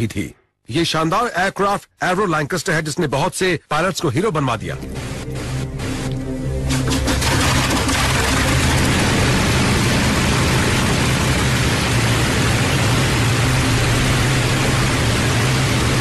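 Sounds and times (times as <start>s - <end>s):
constant low hum: 4.1s - 16.0s
aircraft engines droning: 4.6s - 16.0s.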